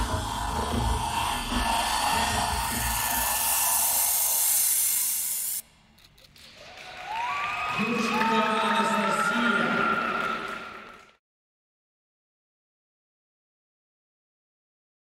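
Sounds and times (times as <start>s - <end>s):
steady hissing noise: 0.0s - 5.9s.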